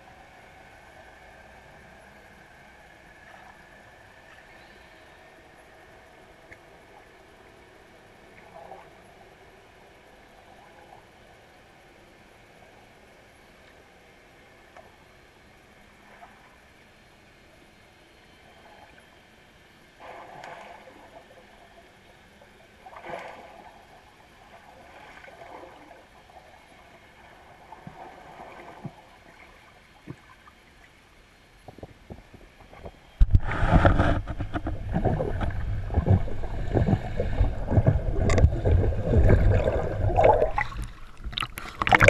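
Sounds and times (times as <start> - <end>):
rushing water and bubbles: 19.9 - 42.0.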